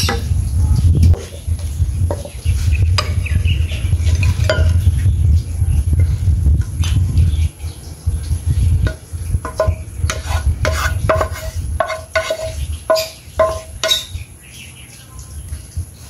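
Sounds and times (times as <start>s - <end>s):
spatula scraping a wok: 1.2s - 4.8s, 8.9s - 14.1s.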